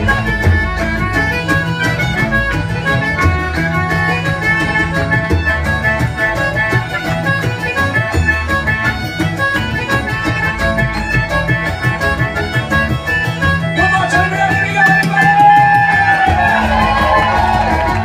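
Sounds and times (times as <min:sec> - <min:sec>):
fiddle melody: 0:00.0 - 0:18.0.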